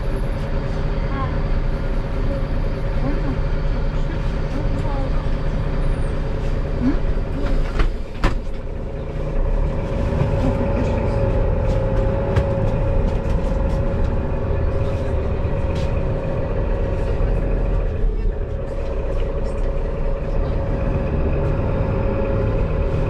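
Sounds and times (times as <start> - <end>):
bus drivetrain hum: 0.0 - 23.0
low rumble: 0.0 - 23.0
bus doors closing knocks: 7.4 - 8.6.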